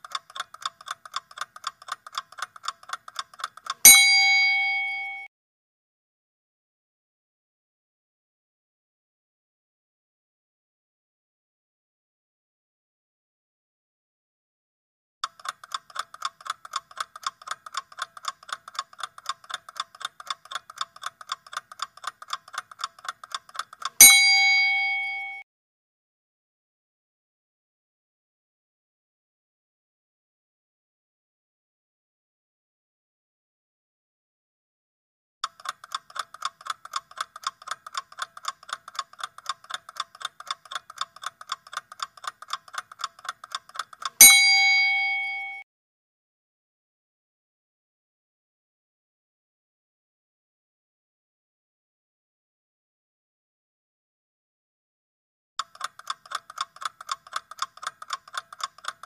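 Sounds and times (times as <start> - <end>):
clock ticking rapidly: 0.0 - 5.3, 15.2 - 25.4, 35.4 - 45.6, 55.6 - 59.0
bell strike: 3.9 - 5.3, 24.0 - 25.4, 44.2 - 45.6.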